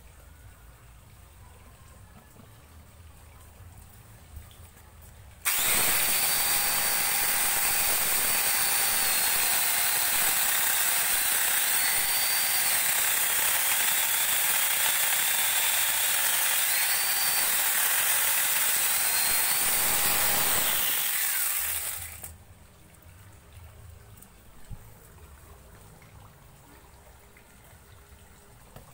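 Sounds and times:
angle grinder chainsaw cutting wood: 5.4s - 22.3s.

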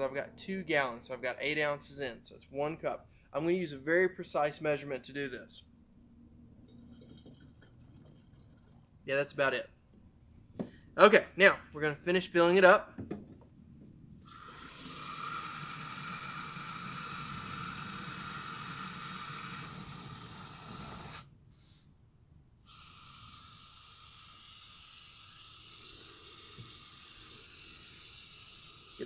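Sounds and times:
water rushing into sprayer: 14.2s - 21.2s, 22.7s - 29.0s.

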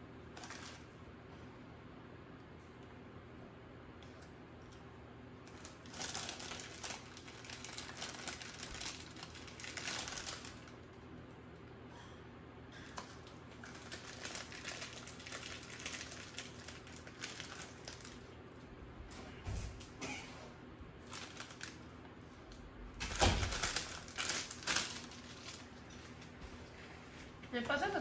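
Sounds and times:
chips crunching: 0.3s - 0.9s, 5.4s - 11.0s, 13.0s - 18.3s, 21.0s - 22.0s, 23.2s - 26.4s
plastic chip bag crinkling: 0.3s - 1.0s, 5.4s - 11.1s, 13.0s - 18.4s, 21.0s - 22.1s, 23.0s - 26.8s.

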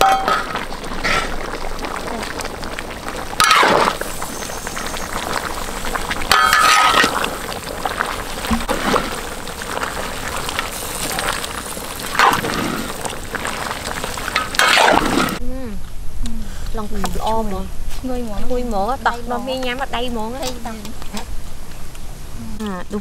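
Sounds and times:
curry bubbling and sizzling in wok: 0.0s - 15.4s.

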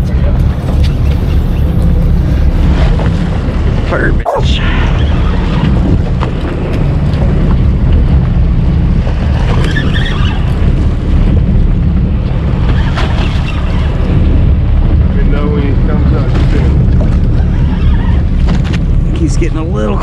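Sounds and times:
boat motor running: 0.0s - 20.0s
wind buffeting microphone: 0.0s - 20.0s.

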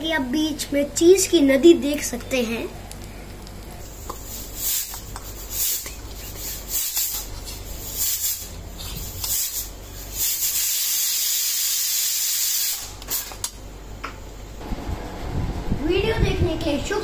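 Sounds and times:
steady hiss: 4.0s - 13.3s.

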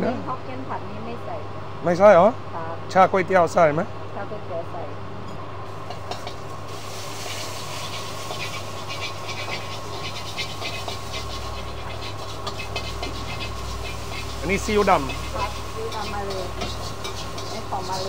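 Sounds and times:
gas burner rumble: 0.0s - 18.0s
noodles sizzling in a wok: 5.6s - 18.0s
fast crackling: 5.9s - 18.0s.

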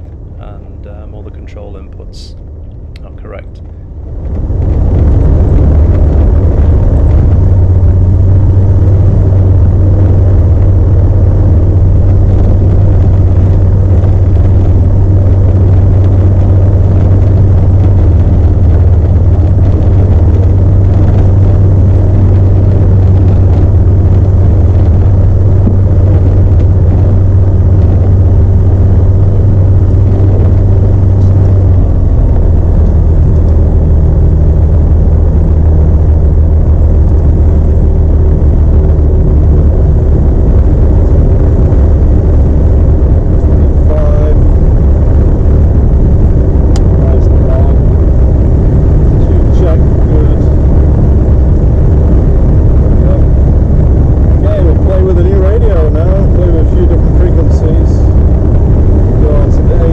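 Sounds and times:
aircraft engine and propeller idling: 0.0s - 59.9s.

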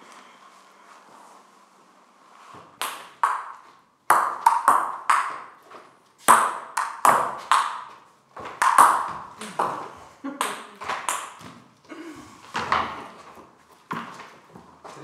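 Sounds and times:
table tennis ball hits: 2.7s - 11.7s, 12.5s - 13.3s.

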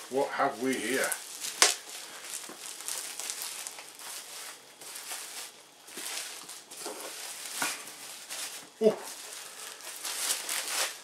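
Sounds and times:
bubble wrap crinkling: 0.0s - 11.0s.

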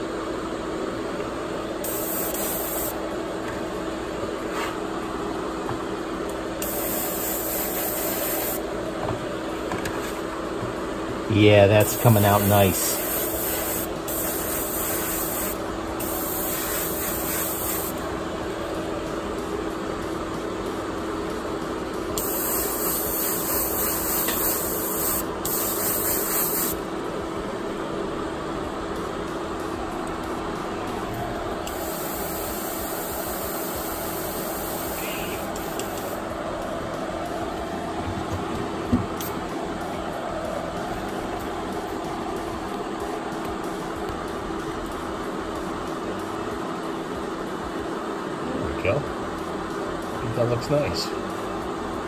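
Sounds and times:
exhaust fan humming: 0.0s - 52.0s
airbrush spraying hiss: 1.8s - 3.0s, 6.6s - 8.7s, 11.8s - 18.0s, 22.2s - 26.9s, 31.7s - 36.3s.

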